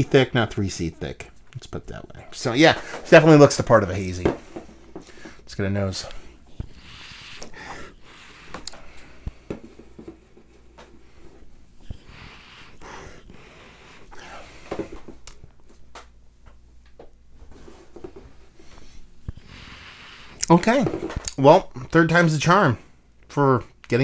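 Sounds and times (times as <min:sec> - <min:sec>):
person sniffing: 0:06.6 - 0:09.3, 0:11.9 - 0:14.6.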